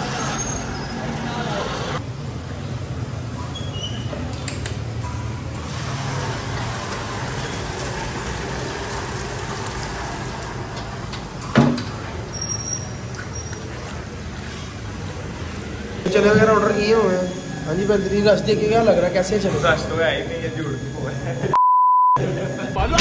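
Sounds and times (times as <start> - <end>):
vehicle engine hum: 0.0 - 16.1.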